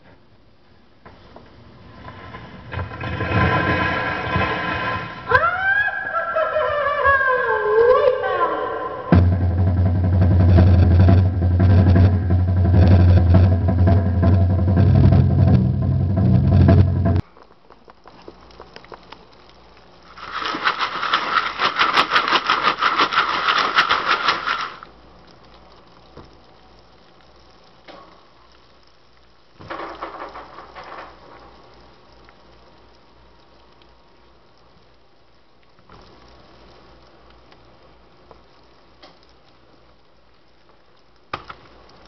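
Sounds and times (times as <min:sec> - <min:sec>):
loud dense crackling: 0:01.8 - 0:05.3, 0:09.1 - 0:35.0
music from a record: 0:08.2 - 0:17.2.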